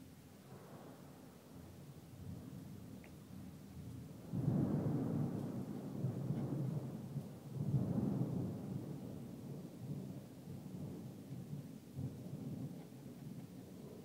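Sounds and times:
thunder rumbling: 0:04.0 - 0:12.8.

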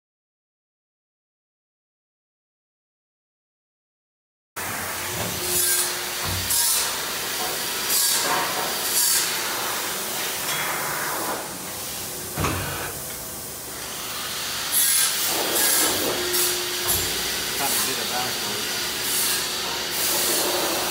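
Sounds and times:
metal strip hissing and scraping: 0:14.1 - 0:20.9.

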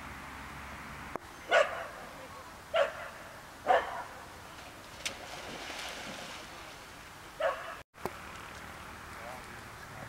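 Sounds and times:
dog barking: 0:01.5 - 0:02.0, 0:02.7 - 0:04.2, 0:07.4 - 0:07.8.

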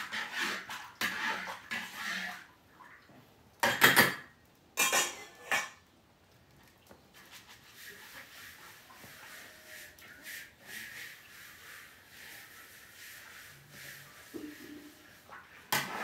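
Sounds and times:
metal spatula scraping wok: 0:00.0 - 0:02.5, 0:04.8 - 0:05.8, 0:07.8 - 0:16.0.

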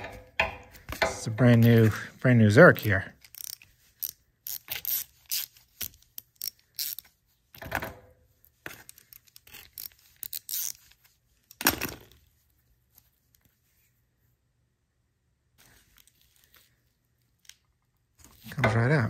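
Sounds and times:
wrench clicking and scraping: 0:03.2 - 0:07.7, 0:08.7 - 0:10.8.

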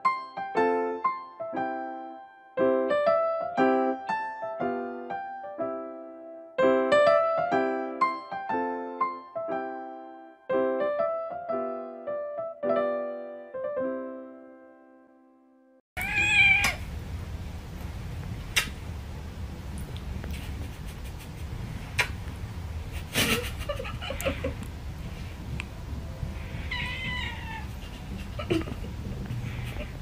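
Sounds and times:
piano music: 0:00.0 - 0:15.8, 0:25.7 - 0:27.4
cat meowing: 0:16.0 - 0:16.9, 0:26.5 - 0:27.8
low hum: 0:16.8 - 0:30.0.

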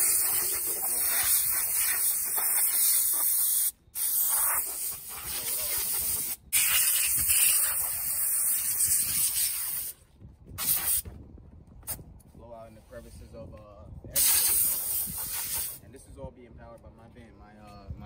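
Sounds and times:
air blow gun hissing: 0:00.0 - 0:10.0, 0:10.6 - 0:11.0, 0:14.2 - 0:15.8.

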